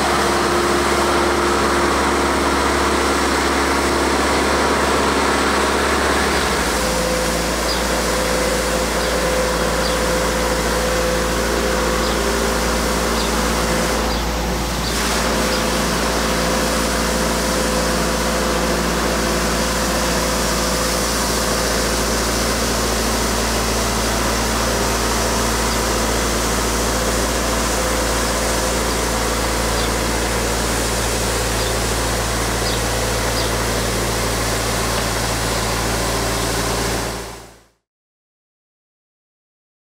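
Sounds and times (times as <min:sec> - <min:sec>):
rotary brush sweeping pavement: 0:00.0 - 0:37.3
diesel engine running: 0:00.0 - 0:37.8.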